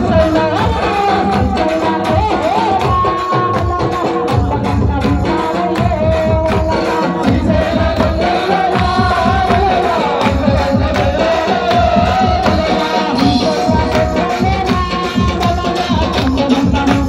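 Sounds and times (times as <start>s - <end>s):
fast hand drum beat: 0.0s - 17.0s
person singing: 0.0s - 17.0s.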